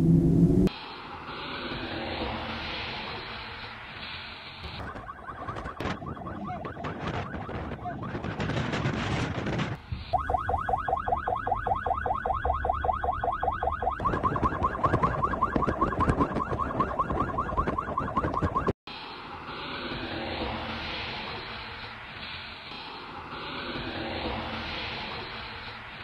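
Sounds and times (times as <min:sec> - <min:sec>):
electronic siren warbling: 0:04.6 - 0:08.9, 0:10.1 - 0:18.7
wind on microphone: 0:04.7 - 0:10.3, 0:13.5 - 0:18.7.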